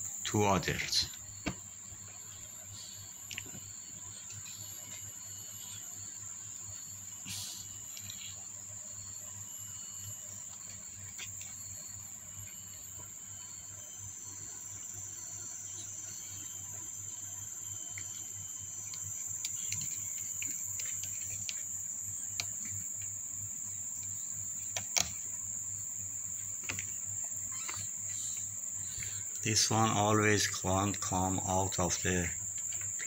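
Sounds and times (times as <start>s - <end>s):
steady high-pitched whine: 0.0s - 33.0s
claws scratching on plastic: 18.8s - 23.2s.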